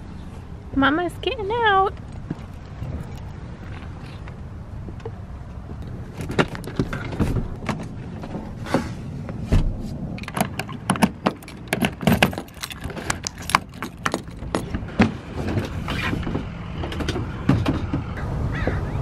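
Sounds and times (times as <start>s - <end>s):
clicks knocks and rustling: 10.2s - 18.1s.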